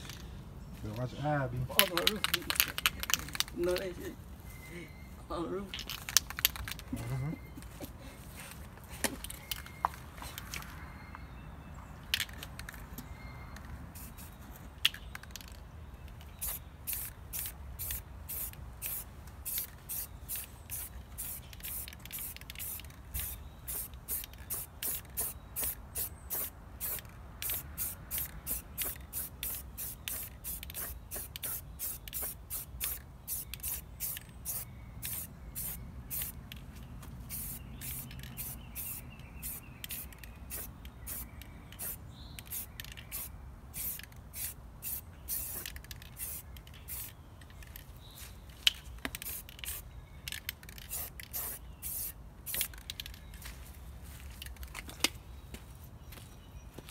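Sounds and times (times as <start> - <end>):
spray can hissing bursts: 16.4 - 36.4, 37.3 - 47.1, 49.1 - 49.8, 50.7 - 52.9.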